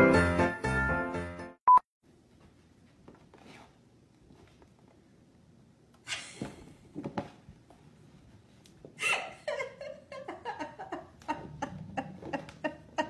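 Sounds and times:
person laughing quietly: 6.0s - 6.9s, 8.9s - 13.0s.

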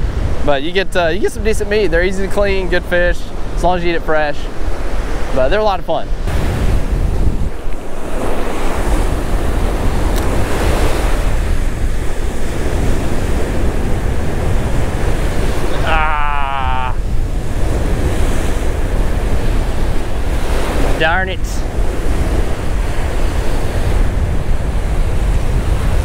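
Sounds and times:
wind buffeting microphone: 0.0s - 26.0s
surf breaking: 6.2s - 26.0s.

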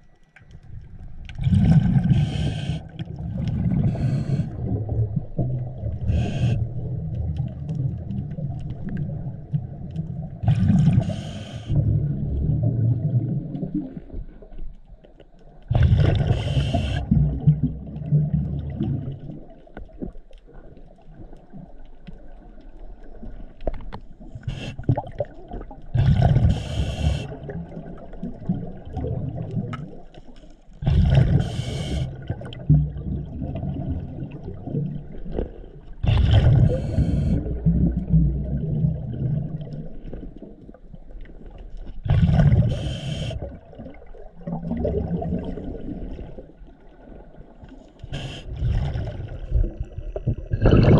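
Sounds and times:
exhaled bubbles rumbling underwater: 0.0s - 50.9s
regulator hissing inhales: 2.1s - 3.0s, 3.8s - 4.6s, 11.0s - 11.8s, 16.3s - 17.1s, 26.5s - 27.4s, 31.4s - 32.2s, 36.7s - 37.5s, 42.7s - 43.4s.

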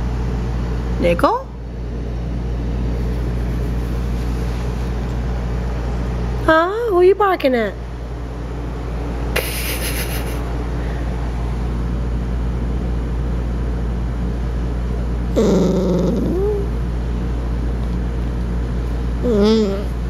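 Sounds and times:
steady low hum: 0.0s - 20.0s
puppy growling grumble: 15.3s - 16.8s, 19.2s - 20.0s
puppy grumbling bark: 15.3s - 16.8s.

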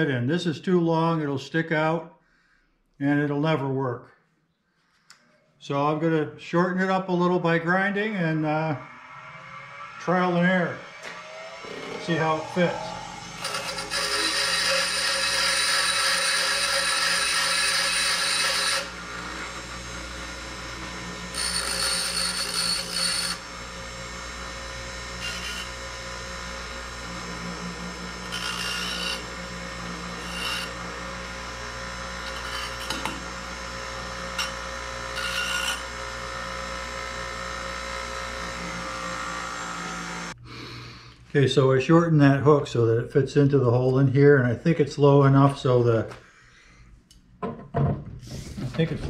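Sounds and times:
metal grinding: 8.0s - 40.4s
power grinder running: 8.0s - 40.4s.

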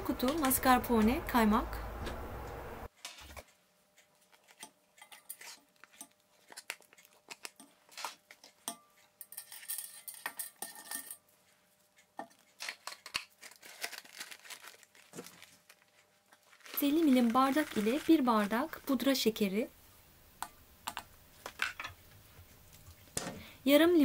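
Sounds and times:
scraping in a metal bowl: 4.4s - 6.7s, 7.4s - 11.2s.

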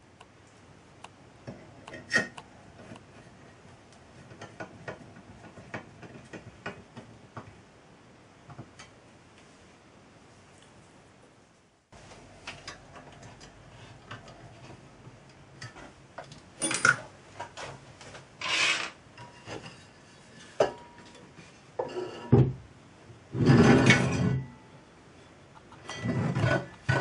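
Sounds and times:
metal scraping on wood: 18.4s - 20.6s, 21.8s - 22.4s, 25.8s - 27.0s.

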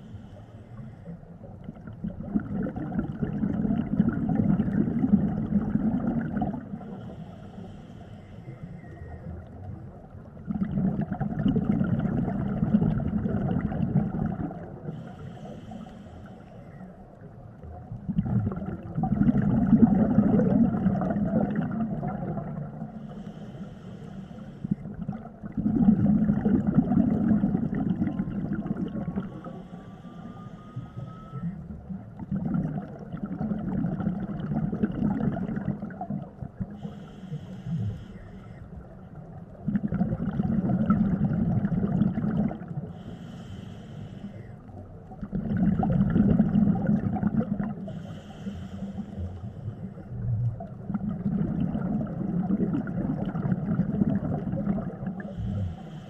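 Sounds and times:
gurgling exhaled bubbles underwater: 0.0s - 7.8s, 8.5s - 16.0s, 16.8s - 43.7s, 44.5s - 56.0s
regulator inhalation hiss: 6.9s - 8.9s, 23.0s - 24.8s, 36.8s - 38.6s, 43.0s - 44.6s, 47.9s - 49.8s, 55.3s - 56.0s.

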